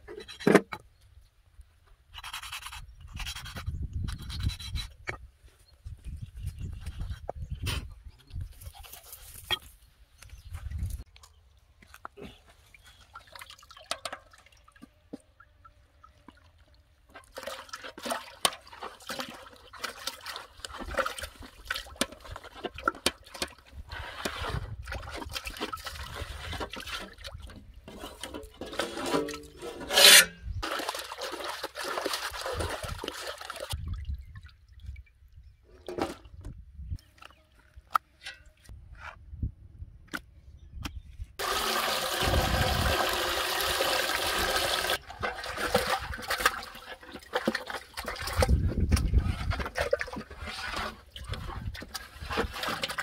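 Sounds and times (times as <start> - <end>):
water splashing and sloshing: 10.6 - 36.6, 41.4 - 53.0.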